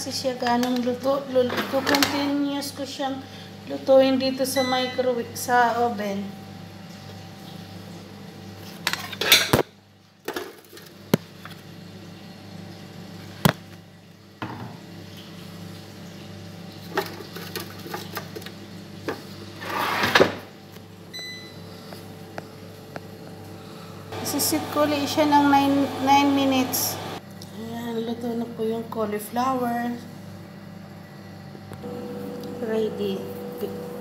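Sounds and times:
low steady hum: 0.0 - 19.6, 20.4 - 34.0
air fryer drawer scraping shut: 19.6 - 20.5.

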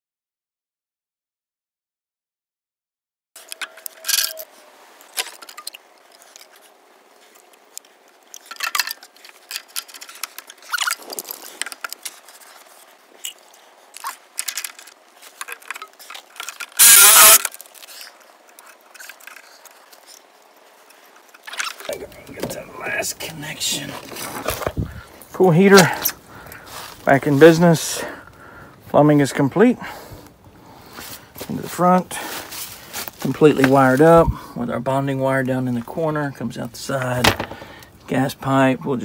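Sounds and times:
plastic pipes clicking and scraping: 3.4 - 22.6.

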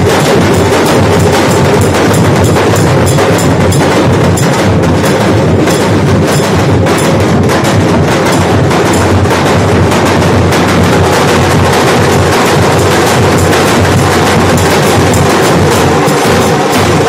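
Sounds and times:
drums beaten with sticks: 0.0 - 17.0.

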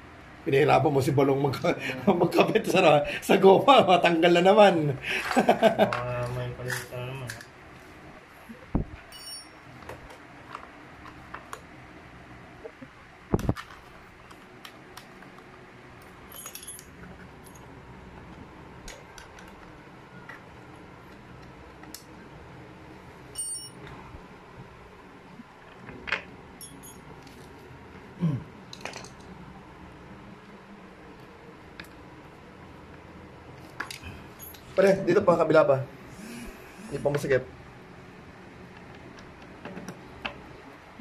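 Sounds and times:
metallic tool clicks and clinks: 9.1 - 9.6, 16.3 - 17.6, 26.6 - 27.0.

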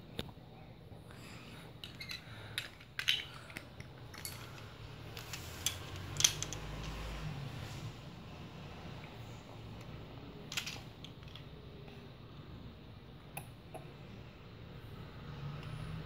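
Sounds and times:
faint low hum: 0.0 - 16.0
plastic toy bricks clicking: 1.8 - 4.6, 5.2 - 7.0, 10.5 - 11.5.

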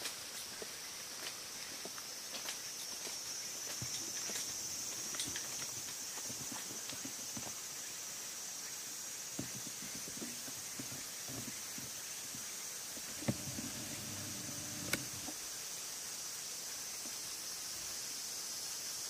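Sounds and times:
footsteps walking: 0.5 - 7.6
sharp clicks: 13.2 - 15.3.

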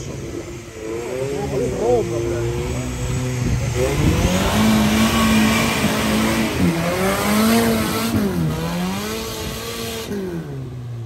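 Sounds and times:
steady rushing noise: 0.0 - 10.2
vehicle engine revving hard: 0.8 - 10.8.

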